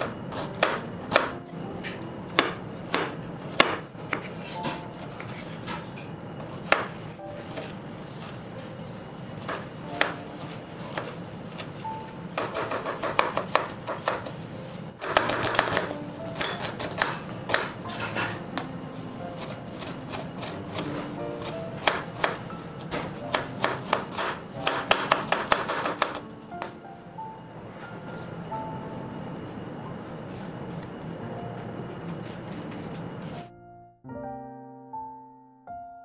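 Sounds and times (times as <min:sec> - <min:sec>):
soft background music: 0:00.0 - 0:36.0
knife chopping on wooden board: 0:02.4 - 0:05.8, 0:12.4 - 0:14.3, 0:15.0 - 0:18.3, 0:21.8 - 0:26.2.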